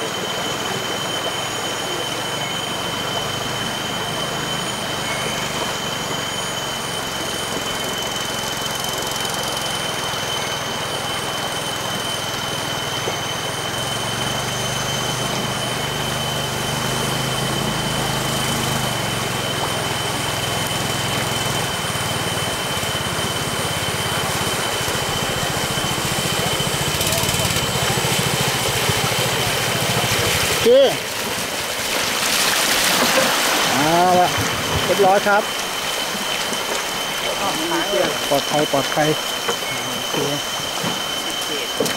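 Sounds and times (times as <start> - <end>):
boat engine running: 0.0 - 41.9
thin high whine: 0.0 - 41.9
river rushing: 23.5 - 38.4.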